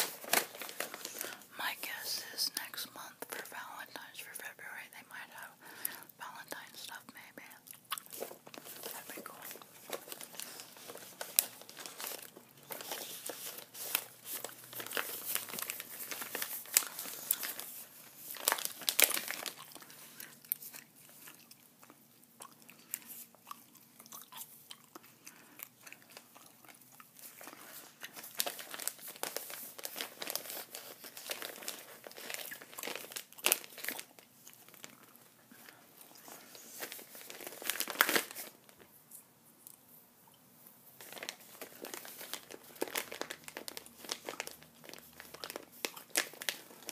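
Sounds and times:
packaging crinkling: 0.0s - 2.0s, 7.8s - 22.0s, 24.2s - 38.9s, 41.0s - 46.9s
gum chewing: 7.6s - 8.5s, 19.6s - 27.2s.

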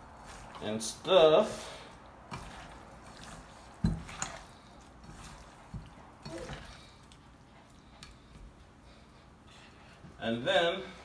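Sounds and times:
raw chicken squelching: 1.5s - 9.0s.

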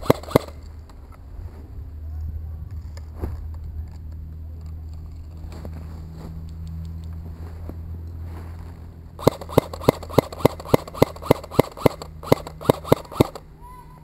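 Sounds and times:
airsoft gun shots: 0.0s - 0.6s, 9.2s - 13.5s
steady low hum: 0.0s - 14.0s.

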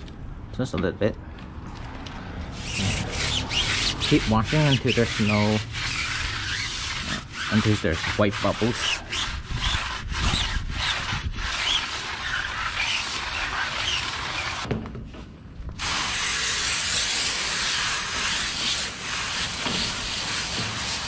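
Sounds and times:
brush scrubbing a tyre: 2.5s - 14.7s, 15.8s - 21.0s.

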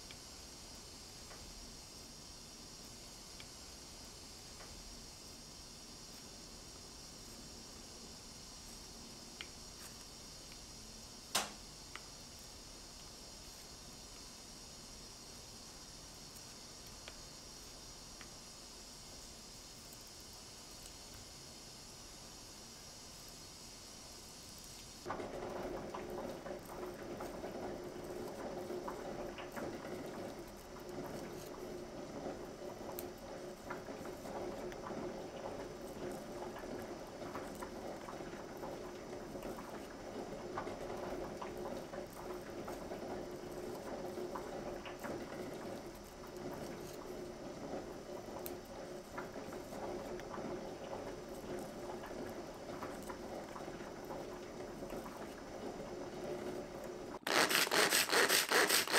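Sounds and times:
potato skins being peeled: 57.2s - 58.9s.

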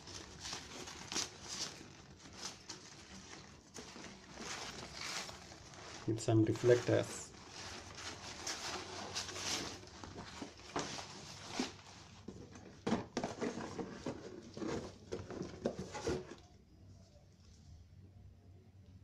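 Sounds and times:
nylon fabric rustling: 0.0s - 12.2s.

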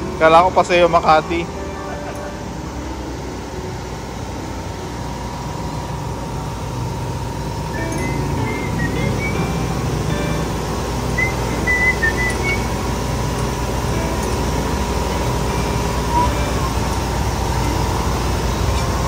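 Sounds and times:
high whistled notes: 7.7s - 14.7s, 15.3s - 18.0s.

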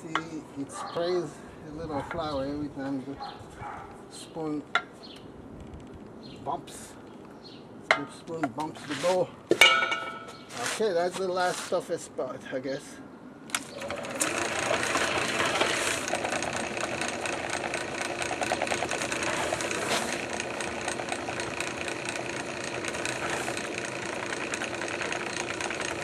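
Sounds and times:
drill press mixer rattling: 13.5s - 26.0s.

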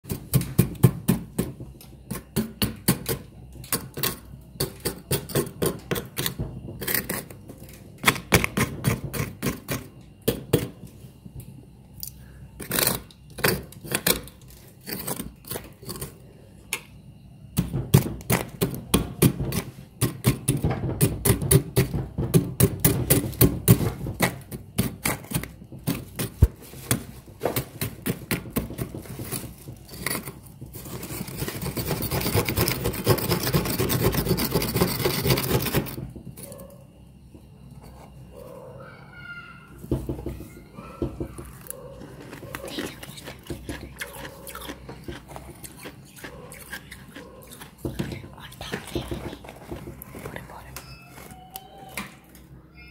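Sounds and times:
frost crunching and crackling: 41.4s - 51.7s.

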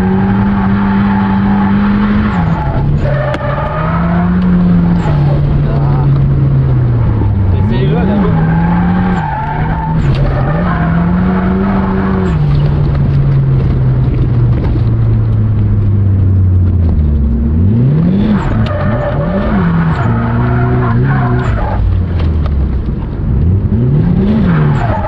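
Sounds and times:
tyres skidding and squealing: 0.0s - 13.6s, 17.6s - 22.4s, 23.7s - 25.0s
car engine revving: 0.0s - 25.0s.

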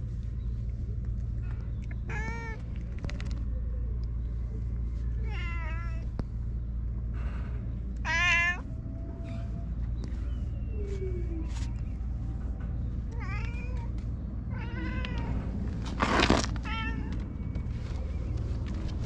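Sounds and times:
low rumble: 0.0s - 19.0s
cat meowing: 8.0s - 8.6s.

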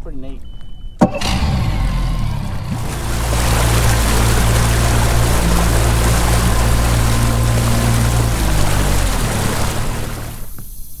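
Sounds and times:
outboard motor humming: 1.0s - 10.6s
rush of wind and water: 2.7s - 10.6s.

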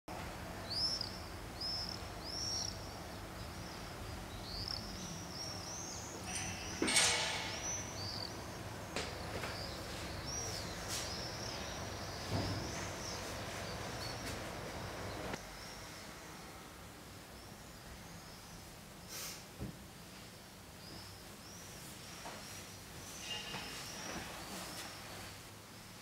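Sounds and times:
low town hum: 0.1s - 17.0s
small birds chirping: 0.6s - 16.4s, 17.2s - 19.4s, 20.7s - 25.4s.

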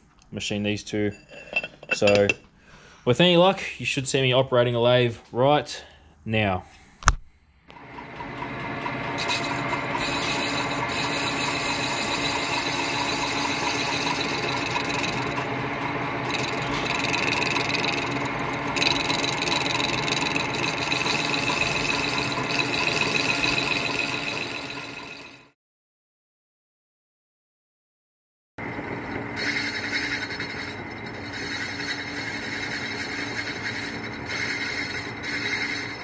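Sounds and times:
lathe whine: 7.7s - 25.5s, 28.6s - 36.0s
cutting tool machining metal: 7.8s - 25.4s, 28.7s - 36.0s.

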